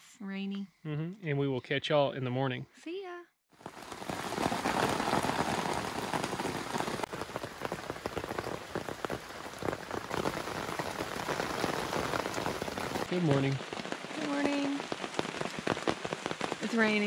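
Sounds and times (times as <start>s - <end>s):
rain on a tent: 3.5s - 17.0s.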